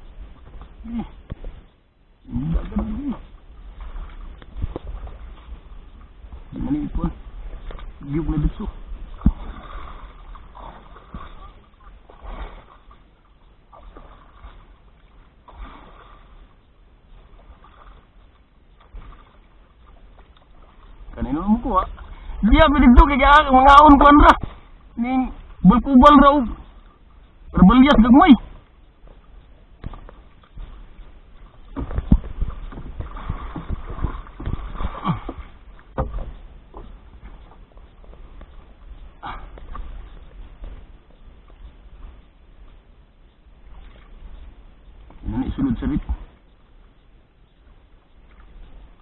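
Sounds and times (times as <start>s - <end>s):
water lapping against boat hull: 0.0s - 49.0s
knocks on wooden boat: 31.7s - 36.9s.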